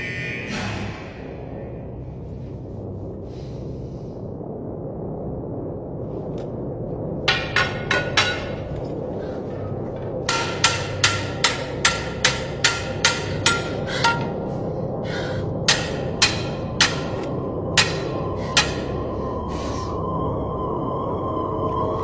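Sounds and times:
low steady drone: 0.0s - 22.0s.

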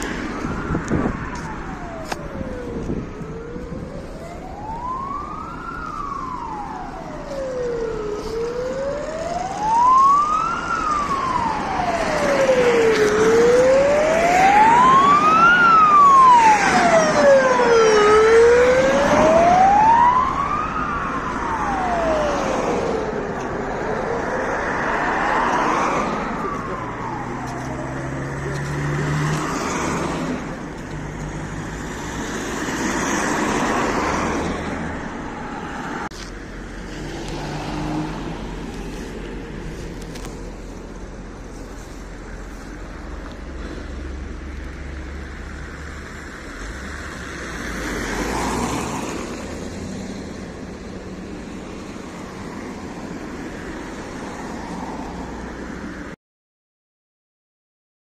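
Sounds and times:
ambulance siren wailing: 0.0s - 36.1s
road traffic noise: 0.0s - 56.2s.

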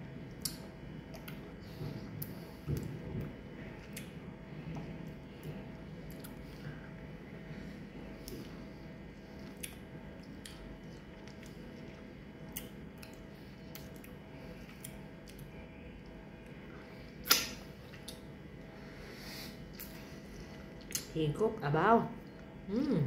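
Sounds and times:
low room hum: 0.0s - 23.0s
wet lip smacks and sucking: 17.2s - 18.2s.

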